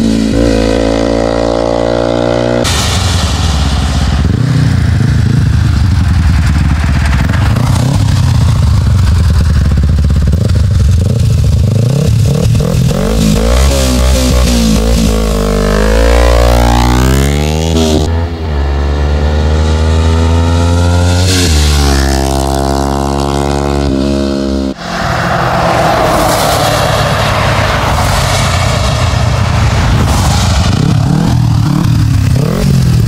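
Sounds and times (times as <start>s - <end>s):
motorcycle engine accelerating: 0.0s - 24.8s, 27.9s - 33.0s
rushing wind noise at speed: 24.8s - 33.0s.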